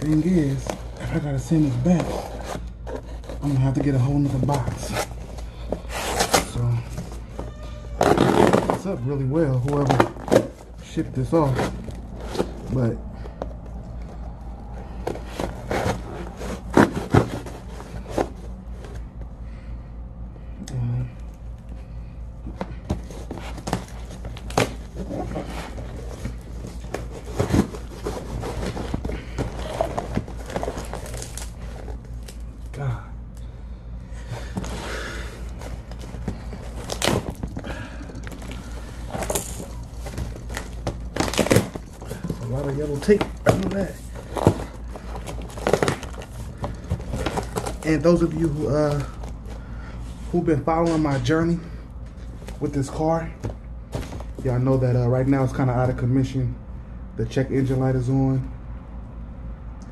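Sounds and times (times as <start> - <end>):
packaging scraping and rubbing: 0.0 - 13.0, 13.6 - 19.2, 22.8 - 32.6, 34.2 - 51.2
steady low hum: 0.0 - 59.9.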